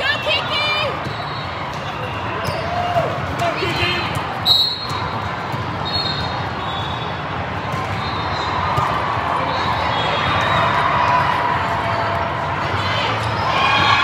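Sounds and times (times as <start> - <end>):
many voices: 0.0 - 14.0
volleyballs hit and bouncing: 0.8 - 12.4
whistle-like tones: 4.4 - 5.0, 5.8 - 7.2.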